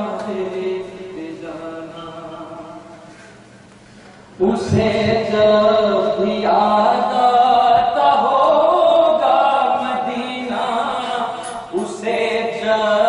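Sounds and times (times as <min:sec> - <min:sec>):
man chanting a lament: 0:04.4 - 0:13.0.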